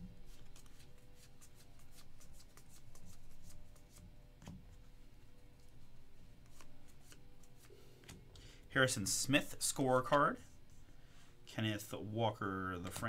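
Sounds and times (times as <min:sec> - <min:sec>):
cards being flipped: 0:00.3 - 0:04.6, 0:06.4 - 0:08.2.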